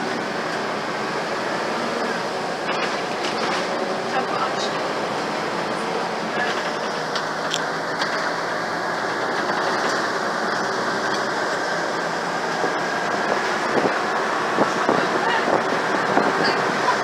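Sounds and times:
bus engine and road noise: 0.0s - 17.0s
rattles of bus fittings: 6.4s - 8.4s, 9.0s - 11.5s.

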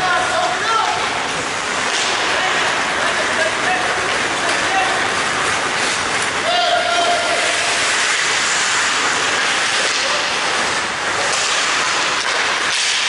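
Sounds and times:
hall background noise: 0.0s - 12.7s
skates on ice: 7.0s - 13.0s.

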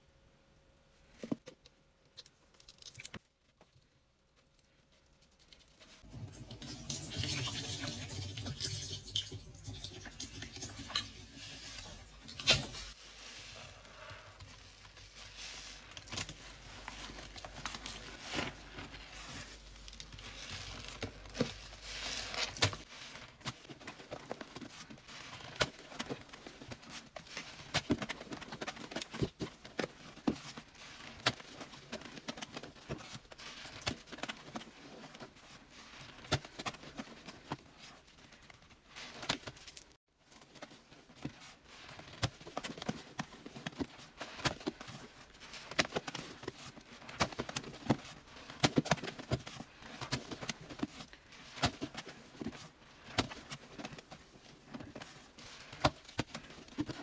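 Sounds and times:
wet sponge squelching: 5.9s - 39.3s.

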